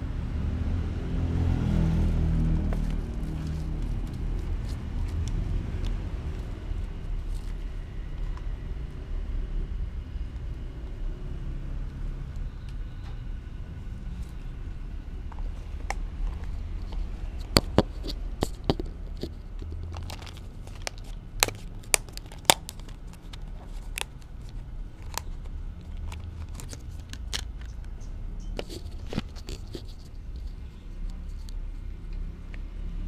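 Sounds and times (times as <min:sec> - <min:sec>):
plastic tubs and kibble clicking: 0:15.3 - 0:28.0.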